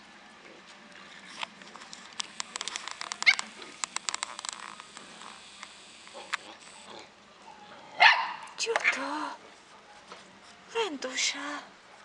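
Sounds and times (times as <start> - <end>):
small clicks and taps: 1.4 - 5.7
puppy yipping: 7.5 - 8.5.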